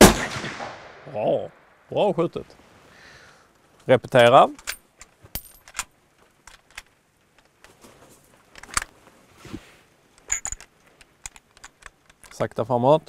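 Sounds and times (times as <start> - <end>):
rifle bolt metallic clicks: 4.5 - 7.6, 8.5 - 8.9, 10.2 - 12.5.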